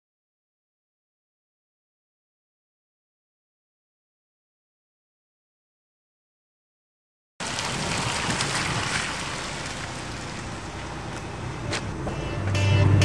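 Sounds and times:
outdoor background noise: 7.4 - 13.0
strummed guitar music: 12.1 - 13.0.

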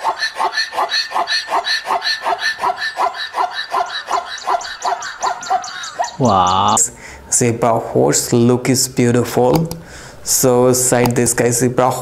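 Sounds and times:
zebra barking yelps: 0.0 - 6.8.

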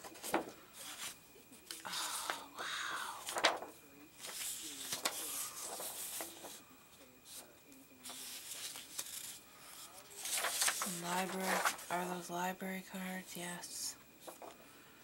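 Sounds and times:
paper sheets rustling and sliding: 0.0 - 1.8, 3.2 - 6.6, 7.3 - 12.2, 14.2 - 14.6
sharp paper crackles: 3.2 - 6.6, 7.3 - 12.1.

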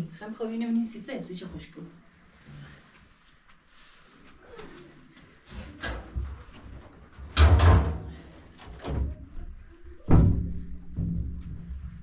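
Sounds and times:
knocks and thumps: 7.4 - 8.1, 10.1 - 12.0.

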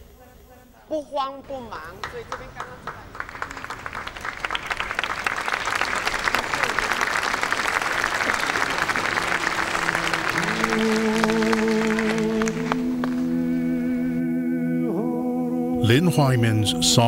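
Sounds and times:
audience applause: 1.9 - 13.3
low chord of held notes: 8.1 - 17.0.

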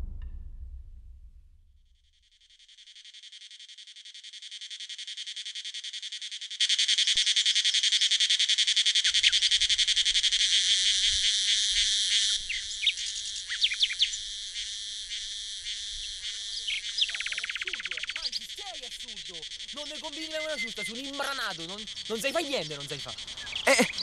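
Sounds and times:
insect chorus buzzing: 2.5 - 24.0
bird chirps: 9.0 - 9.6, 11.8 - 24.0.

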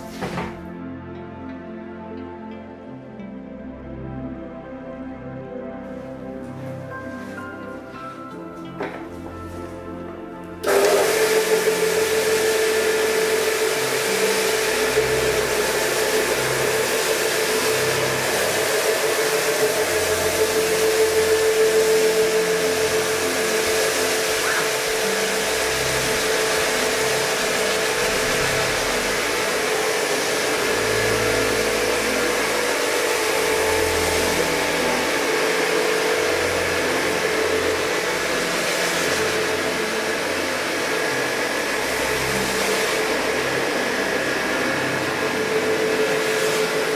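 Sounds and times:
brushes churning wet rug: 0.0 - 0.4, 5.8 - 46.9
carpet scrubber motor running: 10.6 - 46.9.

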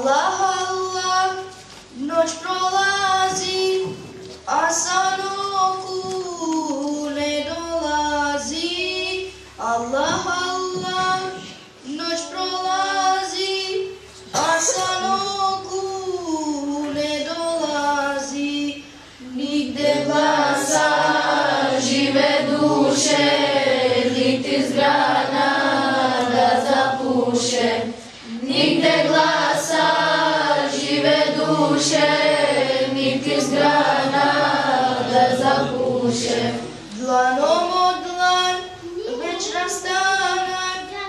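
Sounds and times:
children singing a hymn in unison: 7.1 - 38.6.

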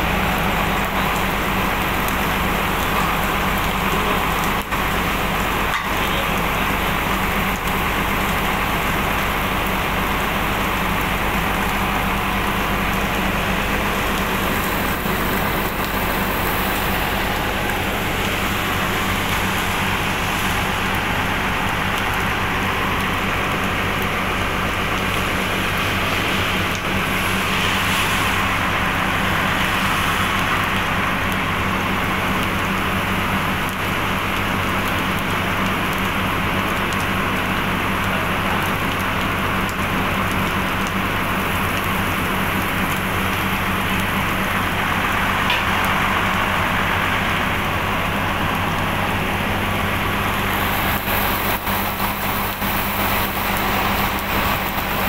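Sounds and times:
low motor hum: 0.0 - 55.0
steady rain falling: 0.0 - 55.0.

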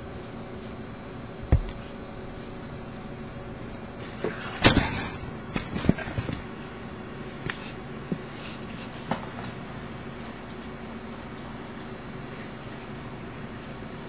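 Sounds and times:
knocks and thumps: 1.5 - 2.0.

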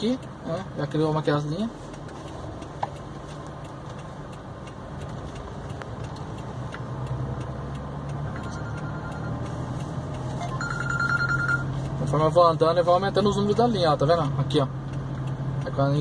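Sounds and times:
faint ticks: 0.0 - 10.8
vehicle engine humming: 0.0 - 16.0.

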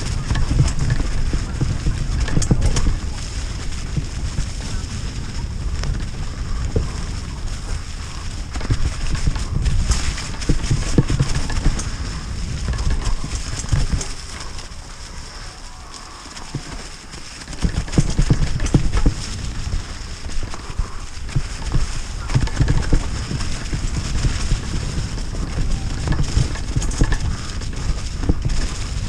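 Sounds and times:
bike rattling over bumps: 0.0 - 29.0
bike tyres rolling over leaves: 0.0 - 29.0
low rumble: 0.0 - 29.0.

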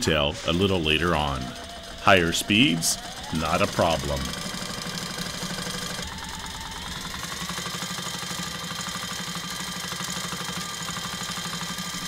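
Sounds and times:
sewing machine stitching fast: 0.0 - 12.0.

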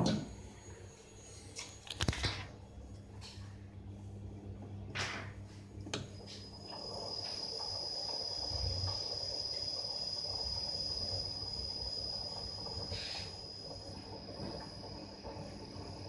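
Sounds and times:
lathe high-pitched whine: 6.2 - 16.0.

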